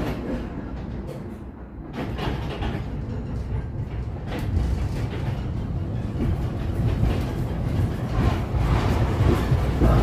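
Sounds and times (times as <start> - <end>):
tram wheels rumbling: 0.0 - 10.0.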